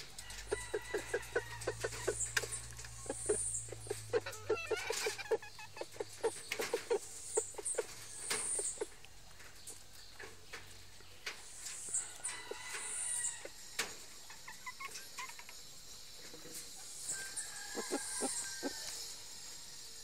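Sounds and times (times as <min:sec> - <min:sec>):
beaks pecking on a feeder: 0:00.0 - 0:15.6
chickens clucking: 0:00.0 - 0:19.6.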